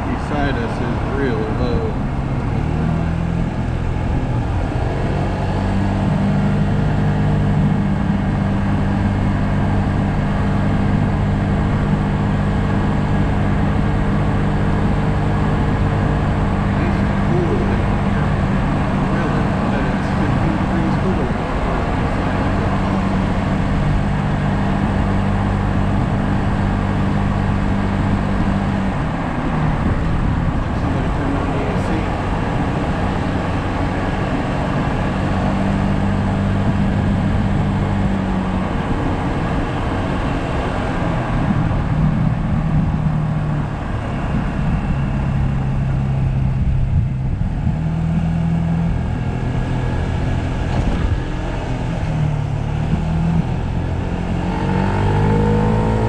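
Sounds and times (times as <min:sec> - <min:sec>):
wind and road noise: 0:00.0 - 0:56.0.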